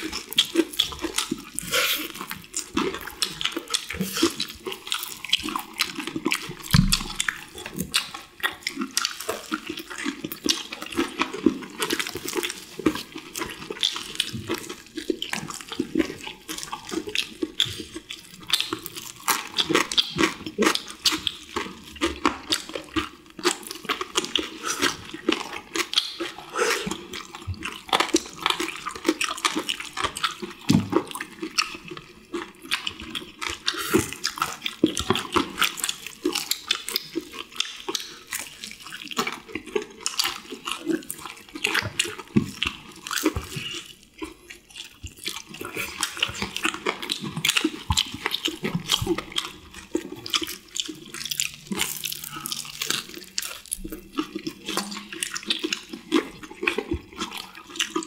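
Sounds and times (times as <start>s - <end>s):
people crunching and chewing: 0.0s - 58.0s.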